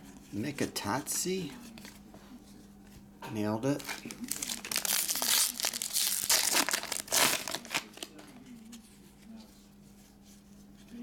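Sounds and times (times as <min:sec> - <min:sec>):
plastic wrapper crinkling and tearing: 0:03.8 - 0:08.4.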